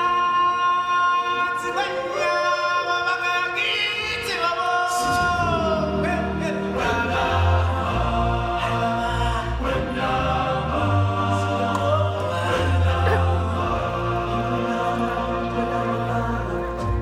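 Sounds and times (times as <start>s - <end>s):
choir singing held notes: 4.9s - 17.0s.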